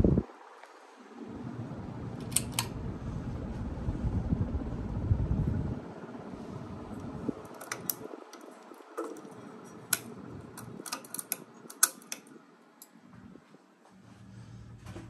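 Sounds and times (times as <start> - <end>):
ceiling fan whirring: 0.0 - 15.0
fan low hum: 0.0 - 15.0
light clicks and ticks: 7.0 - 13.0.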